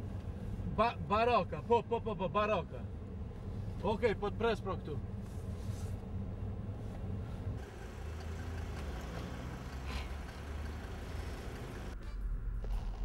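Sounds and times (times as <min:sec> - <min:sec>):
street noise: 0:00.0 - 0:13.0
car engine idling: 0:02.8 - 0:12.0.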